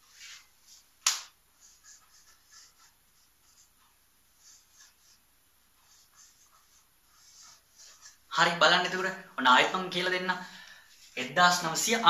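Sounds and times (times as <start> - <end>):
marker squeaking on whiteboard: 1.6 - 5.2, 5.8 - 9.0.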